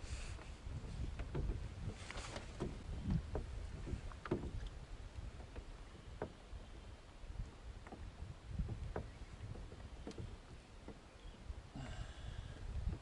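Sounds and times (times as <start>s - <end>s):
small waves lapping against hull: 0.0s - 13.0s
knocks and splashes: 0.8s - 6.4s, 7.8s - 11.0s.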